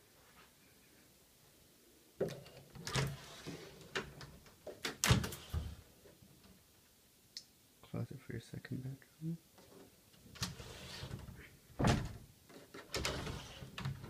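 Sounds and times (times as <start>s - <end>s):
folding doors knocking and rattling: 4.8s - 5.8s, 10.4s - 14.0s.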